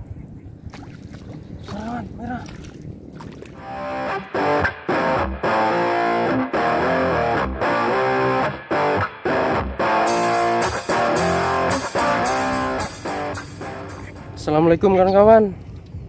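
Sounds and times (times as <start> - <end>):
guitar music: 3.6 - 14.8.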